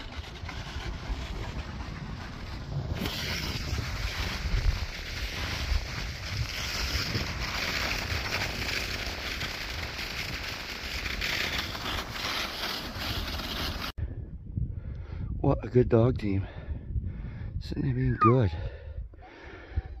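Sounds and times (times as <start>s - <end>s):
sled sliding on snow: 0.0s - 14.0s
wind buffeting microphone: 14.0s - 20.0s.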